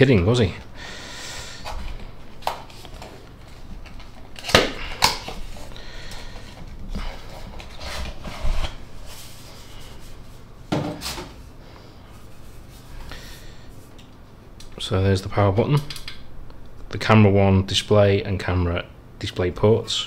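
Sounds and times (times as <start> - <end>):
cardboard flaps rustling and scraping: 7.2 - 11.5.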